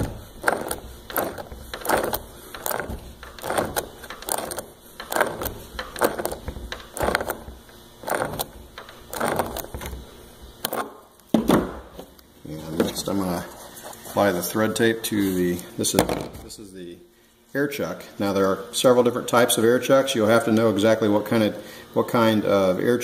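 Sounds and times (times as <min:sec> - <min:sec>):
wrench turning pipe threads: 0:00.0 - 0:11.0.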